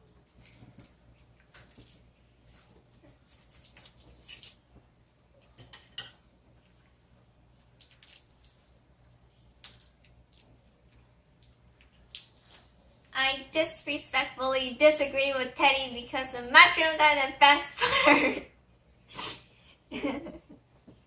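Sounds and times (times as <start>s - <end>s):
low steady hum: 0.0s - 21.0s
metal fork clinking on plate: 5.6s - 6.2s.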